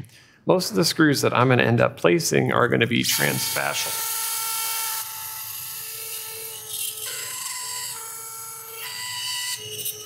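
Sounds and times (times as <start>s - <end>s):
surgical drill whining: 3.0s - 10.0s.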